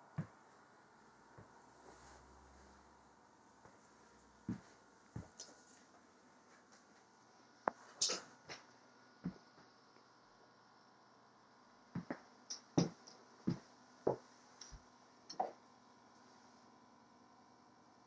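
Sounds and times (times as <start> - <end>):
footsteps on wooden floor: 12.8 - 14.2.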